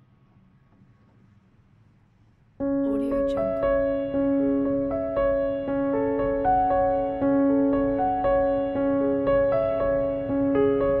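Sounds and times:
gentle keyboard melody: 0:02.6 - 0:11.0.

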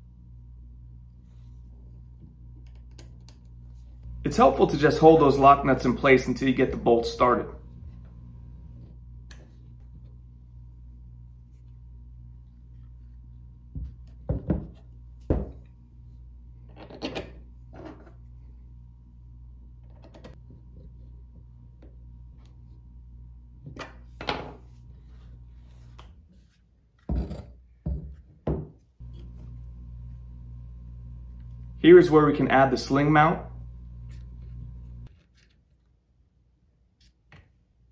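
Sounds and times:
steady low hum: 0:00.0 - 0:16.7, 0:29.0 - 0:35.1.

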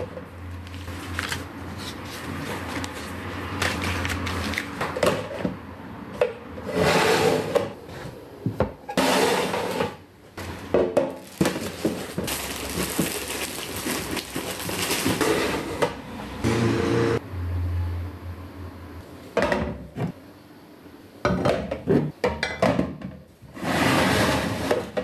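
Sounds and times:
containers knocking and clattering: 0:10.7 - 0:15.4.

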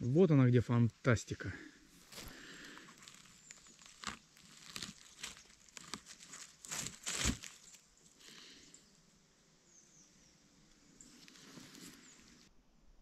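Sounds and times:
twigs crunching and crackling: 0:01.9 - 0:08.6, 0:11.0 - 0:12.5.

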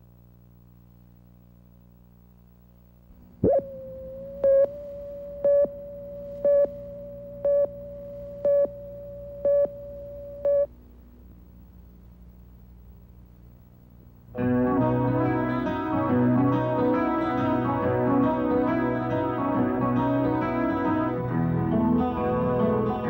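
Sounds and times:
low hum: 0:00.0 - 0:15.6
steady mid-pitched tone: 0:03.1 - 0:10.7
countdown beeps: 0:03.4 - 0:10.7.

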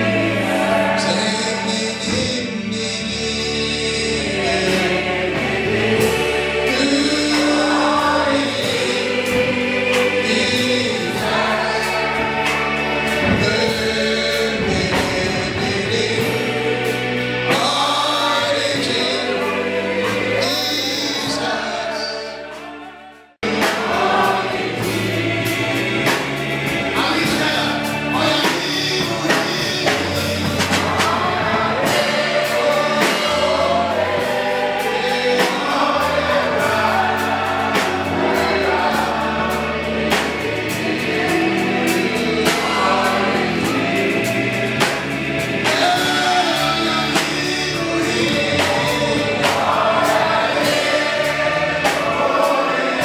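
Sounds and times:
band with drums: 0:00.0 - 0:53.0
congregation singing: 0:00.0 - 0:53.0
man singing into microphone: 0:01.0 - 0:05.1, 0:06.7 - 0:09.0, 0:13.2 - 0:16.5, 0:17.5 - 0:22.4, 0:27.0 - 0:32.0, 0:45.6 - 0:49.6.

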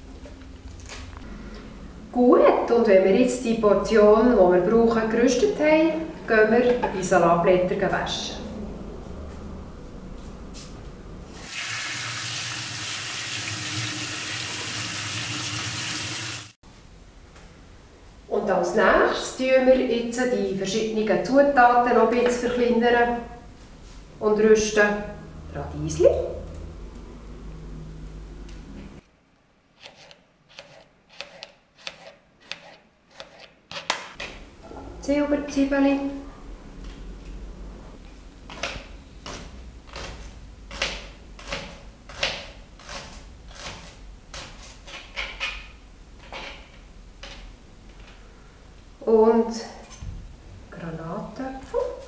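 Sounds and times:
tap water running onto leaves: 0:11.4 - 0:16.5
knife cutting on plastic board: 0:29.8 - 0:34.1.

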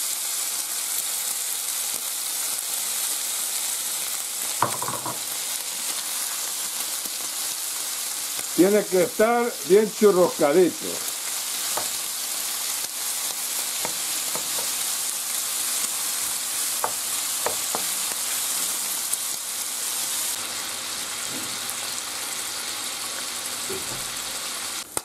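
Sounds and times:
bacon sizzling in frying pan: 0:00.0 - 0:25.0.

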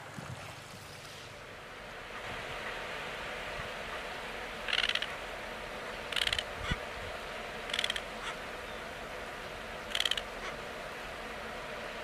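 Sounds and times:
terns rasping calls: 0:04.6 - 0:05.2, 0:06.1 - 0:06.8, 0:07.6 - 0:08.9, 0:09.8 - 0:10.6.

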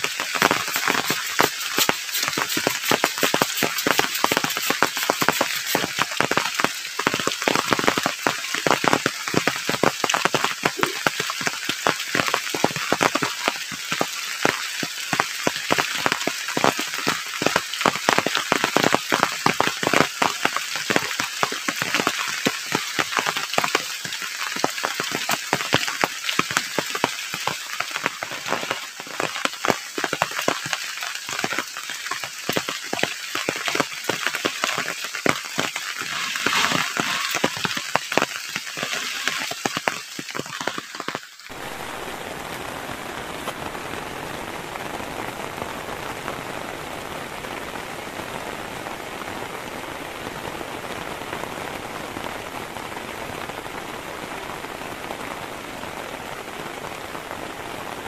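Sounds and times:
heavy rain falling: 0:00.0 - 0:58.0.

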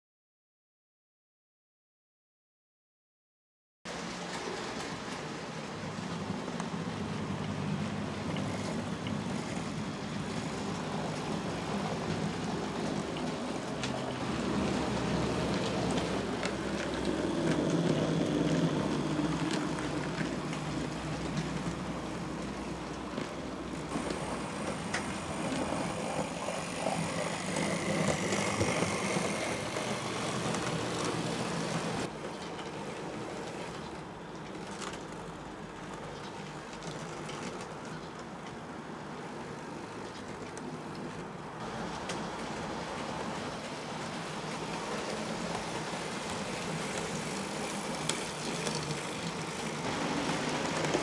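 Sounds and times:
wheels clicking over rail joints: 0:03.9 - 0:51.0
model train motors whirring: 0:06.2 - 0:34.0, 0:41.6 - 0:51.0.

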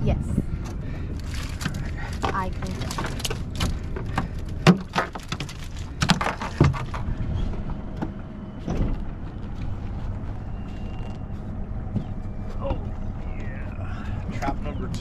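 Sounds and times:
wire trap clanking and rattling: 0:01.2 - 0:07.1.

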